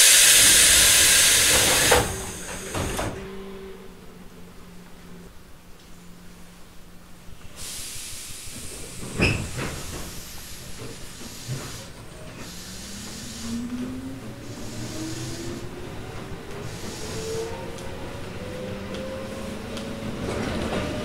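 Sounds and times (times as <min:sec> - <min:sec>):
air hiss: 0:00.0 - 0:03.2, 0:07.4 - 0:15.8, 0:16.5 - 0:17.8
train motor hum rising: 0:11.3 - 0:21.0.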